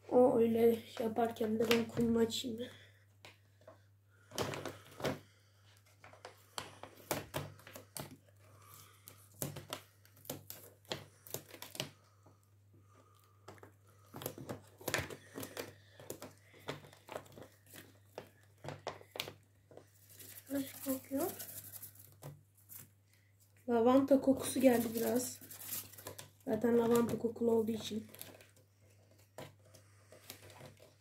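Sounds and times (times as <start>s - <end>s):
packaging crinkling and tearing: 7.0s - 12.0s, 12.8s - 22.9s, 24.4s - 31.0s.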